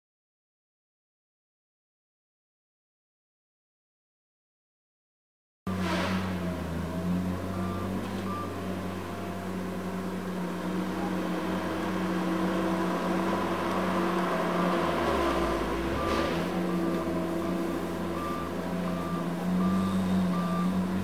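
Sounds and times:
diesel engine running: 5.7s - 21.0s
short beeps of travel alarm: 7.5s - 8.6s, 15.3s - 21.0s.

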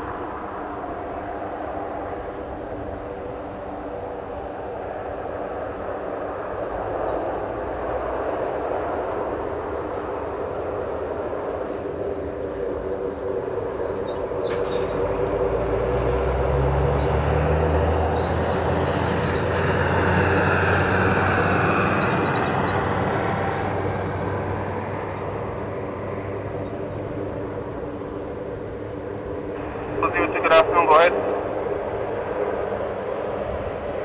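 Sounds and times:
propeller drone: 0.0s - 34.0s.

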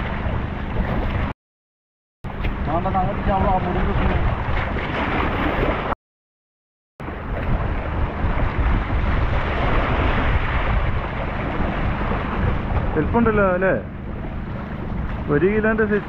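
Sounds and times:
waves splashing over rocks: 2.3s - 6.0s, 7.1s - 16.0s
wind buffeting microphone: 2.3s - 6.0s, 7.0s - 16.0s.

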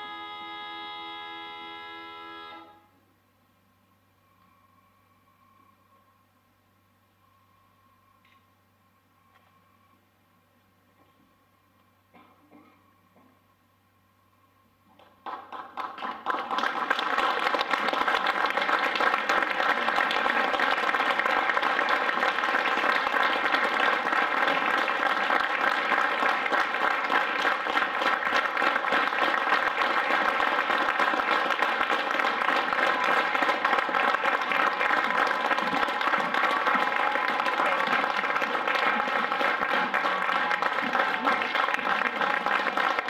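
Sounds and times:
audience applauding: 15.0s - 43.0s.

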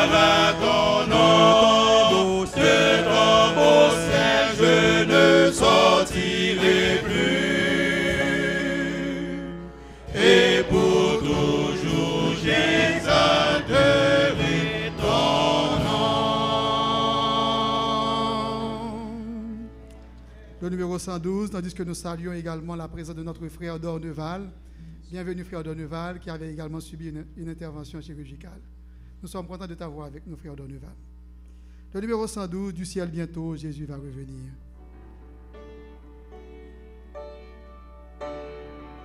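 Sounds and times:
church choir singing a hymn: 0.0s - 19.7s.

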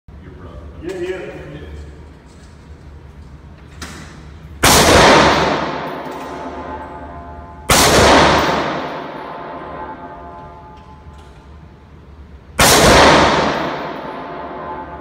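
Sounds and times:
rifle shots echoing indoors: 3.8s - 15.0s.

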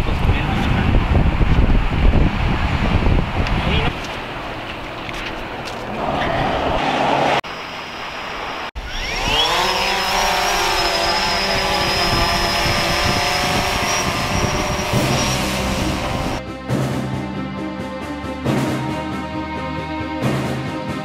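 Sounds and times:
rushing noise: 0.0s - 16.4s
drone propellers buzzing: 0.0s - 16.5s.

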